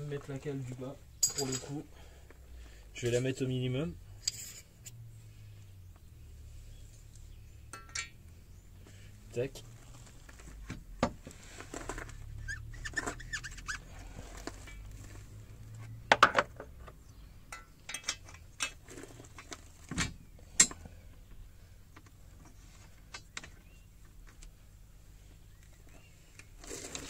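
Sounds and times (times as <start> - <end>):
metal clinks and knocks: 1.2 - 1.8, 7.7 - 8.3, 14.5 - 15.0, 17.5 - 19.5, 20.5 - 20.9.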